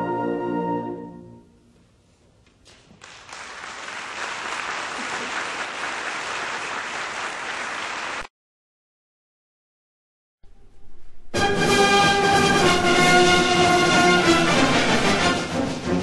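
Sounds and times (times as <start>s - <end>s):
audience applauding: 2.7s - 8.3s.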